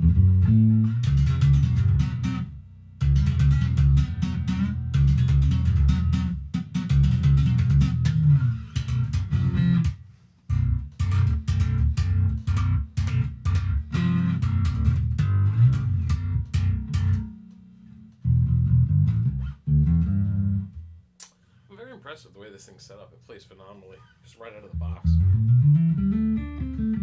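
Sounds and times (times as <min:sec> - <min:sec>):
electric bass played fingerstyle: 0:00.0 - 0:21.4, 0:24.5 - 0:27.0.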